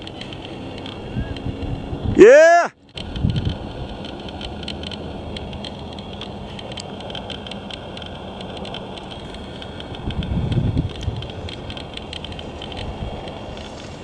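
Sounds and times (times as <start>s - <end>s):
wind noise on microphone: 0.0s - 2.4s, 3.0s - 14.0s
low gusting rumble: 0.0s - 14.0s
faint crackles: 2.8s - 14.0s.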